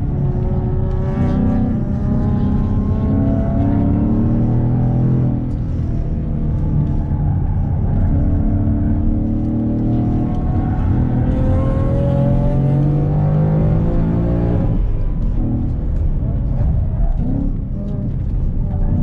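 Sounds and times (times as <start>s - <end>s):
car engine accelerating: 0.0s - 19.0s.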